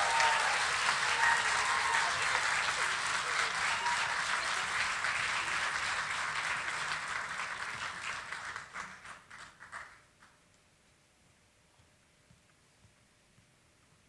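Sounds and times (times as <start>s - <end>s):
audience applause: 0.0s - 10.1s.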